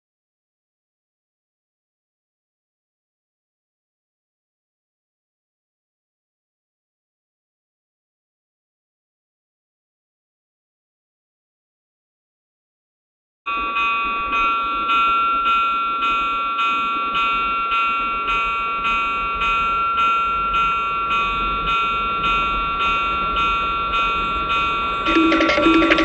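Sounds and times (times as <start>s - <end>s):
train noise: 13.5s - 26.0s
pulsing electronic tone: 25.1s - 26.0s.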